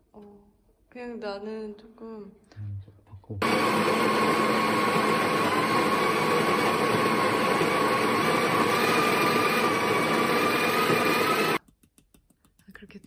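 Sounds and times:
coffee grinder motor whine: 3.4s - 11.6s.

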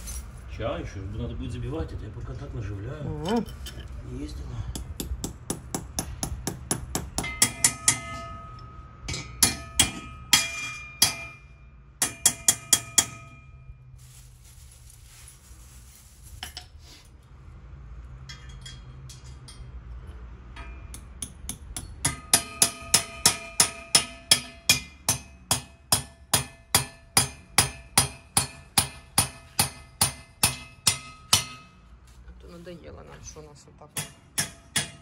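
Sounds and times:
hammer striking metal: 4.7s - 13.6s, 20.5s - 31.8s, 33.9s - 35.0s.

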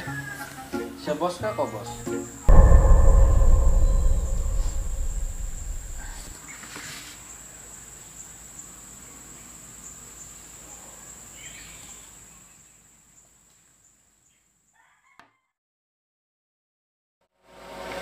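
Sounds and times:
deep sustained music note: 2.5s - 6.3s.

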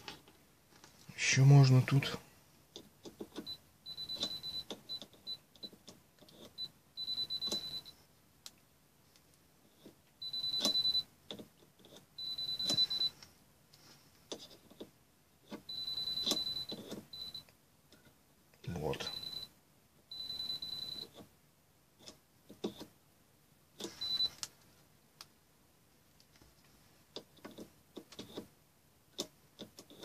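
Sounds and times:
multimeter beeping: 3.4s - 5.4s, 6.6s - 8.0s, 10.2s - 11.1s, 12.2s - 13.2s, 15.7s - 17.5s, 19.0s - 19.5s, 20.1s - 21.1s, 23.9s - 24.4s.

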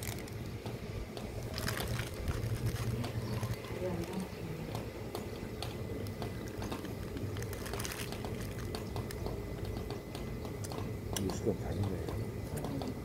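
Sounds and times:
low background rumble: 0.0s - 13.0s
wet chewing: 1.2s - 11.3s.

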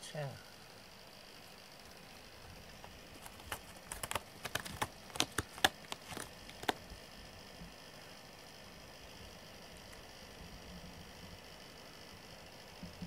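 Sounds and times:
cat claws ticking: 2.8s - 6.8s.

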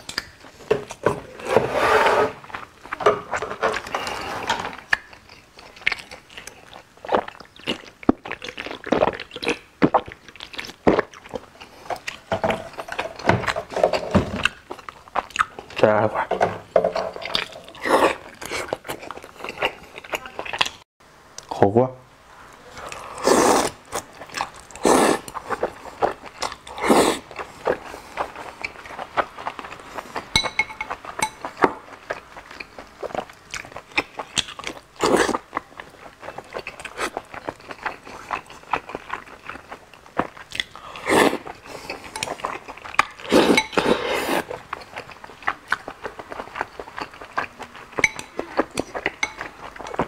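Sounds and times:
wet chewing: 4.7s - 16.3s, 17.2s - 20.8s, 22.5s - 50.0s
slurping noodles: 22.7s - 28.6s, 40.8s - 44.6s.

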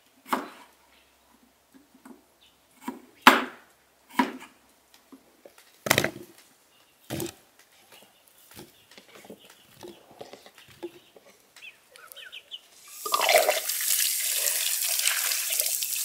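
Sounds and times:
knife cutting potato on wood: 4.1s - 4.5s.

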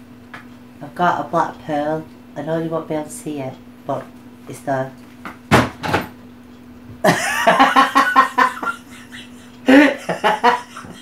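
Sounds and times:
woman laughing loudly: 7.0s - 11.0s.

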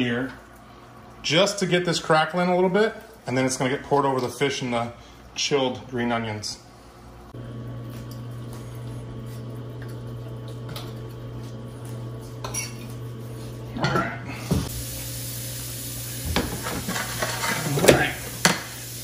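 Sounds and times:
cutlery and plates clinking: 12.4s - 13.0s.

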